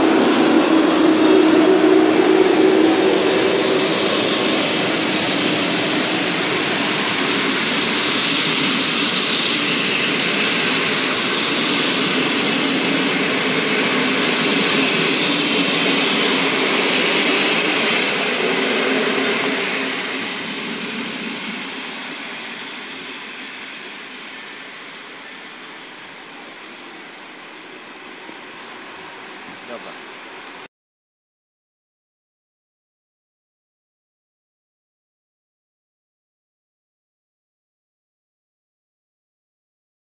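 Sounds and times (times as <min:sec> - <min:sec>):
train wheels rushing on rails: 0:00.0 - 0:30.7.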